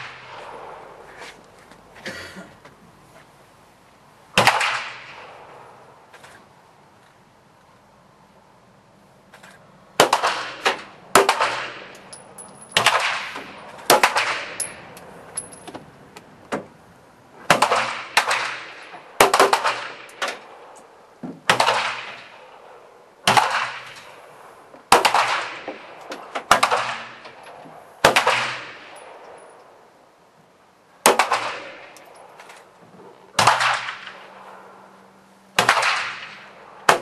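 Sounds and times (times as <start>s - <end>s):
pistol shots with echo: 4.4s - 5.4s, 10.0s - 11.9s, 12.8s - 14.8s, 17.5s - 20.7s, 21.5s - 22.7s, 23.3s - 24.0s, 24.9s - 25.9s, 26.5s - 27.2s, 28.0s - 29.3s, 31.0s - 32.0s, 33.4s - 34.4s, 35.6s - 37.0s.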